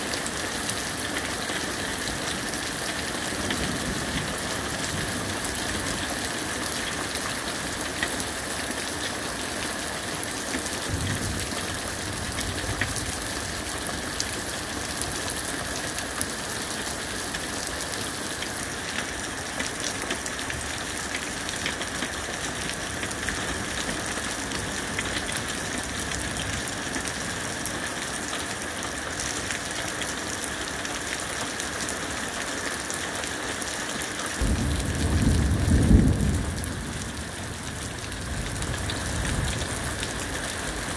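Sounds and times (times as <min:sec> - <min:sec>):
rain pattering: 0:00.0 - 0:40.9
thunder rumbling: 0:10.9 - 0:13.7, 0:34.4 - 0:40.8.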